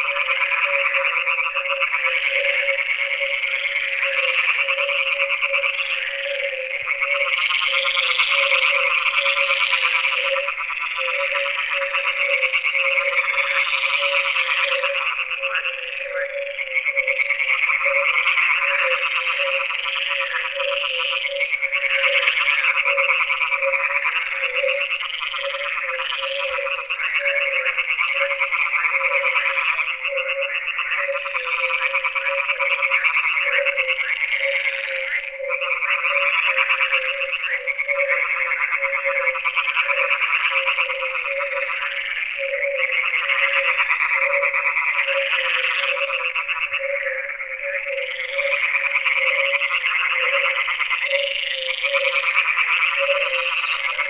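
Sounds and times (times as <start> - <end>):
frogs croaking: 0.0 - 54.0.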